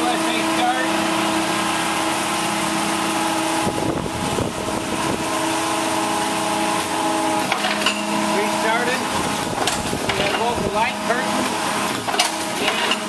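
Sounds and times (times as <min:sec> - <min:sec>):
press machine humming: 0:00.0 - 0:13.0.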